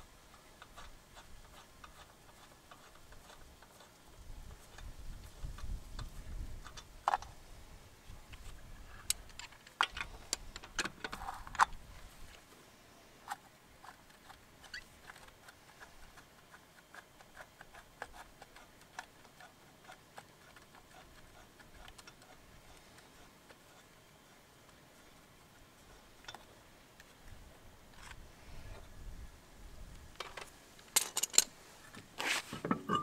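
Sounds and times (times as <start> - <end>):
light ticks of nut on threads: 0.3 - 4.0, 13.3 - 23.9.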